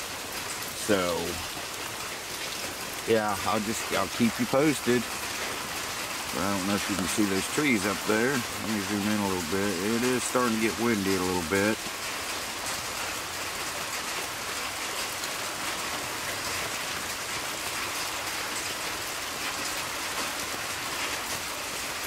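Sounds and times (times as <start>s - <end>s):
heavy rain on trees and ground: 0.0s - 22.0s.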